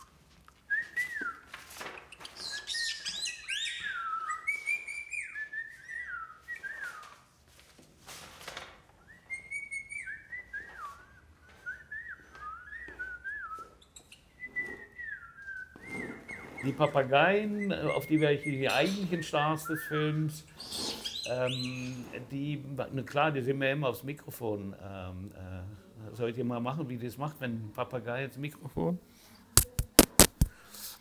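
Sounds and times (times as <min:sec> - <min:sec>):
parrot whistling: 0:00.0 - 0:07.1, 0:09.0 - 0:22.1
parrot high chirps: 0:02.0 - 0:06.2, 0:09.3 - 0:10.3, 0:15.8 - 0:19.2, 0:20.6 - 0:22.0.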